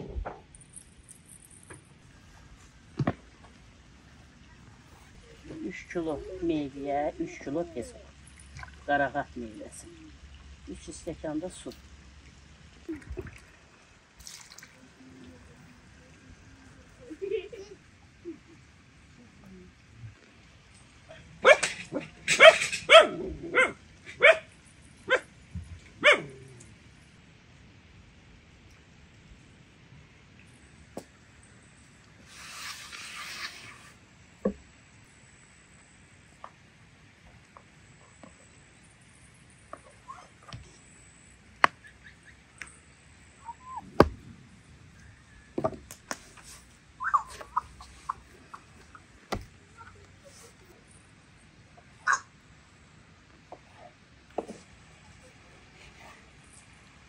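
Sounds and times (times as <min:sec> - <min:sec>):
dog barking: 0:21.4 - 0:24.5, 0:25.1 - 0:25.3, 0:26.0 - 0:26.4, 0:52.0 - 0:52.3
bird chirps: 0:47.0 - 0:49.0.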